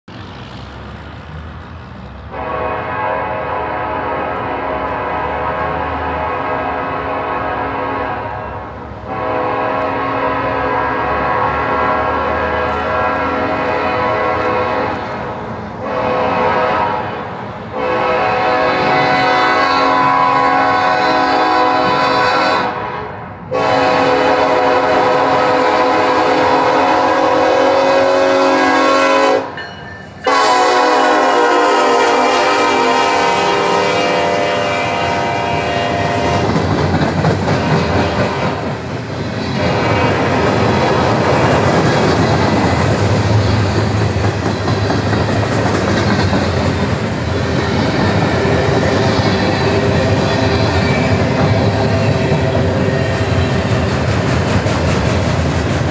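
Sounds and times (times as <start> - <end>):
freight cars rumbling on rails: 0.0 - 55.9
locomotive air horn blasts: 2.3 - 15.1, 15.8 - 29.6, 30.2 - 36.5, 39.6 - 41.0.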